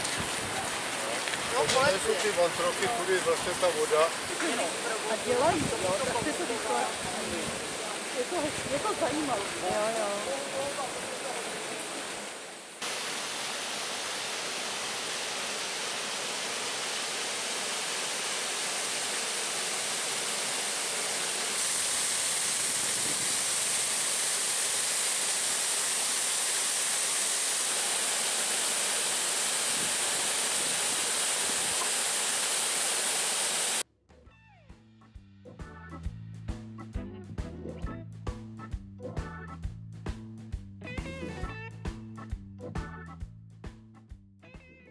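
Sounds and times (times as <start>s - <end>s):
water rushing along flume: 0.0s - 33.8s
music: 33.9s - 44.9s.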